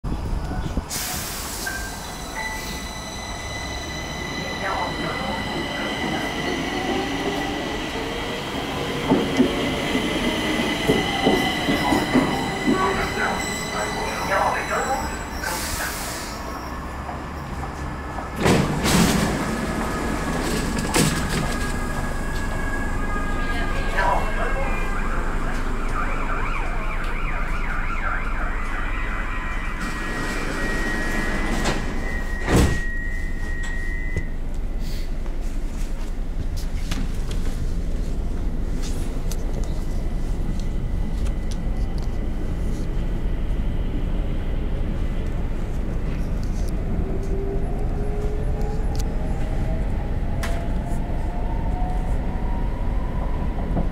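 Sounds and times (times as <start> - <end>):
metro train whine: 0.1 - 53.9
train knocks: 8.7 - 13.3, 17.0 - 22.5.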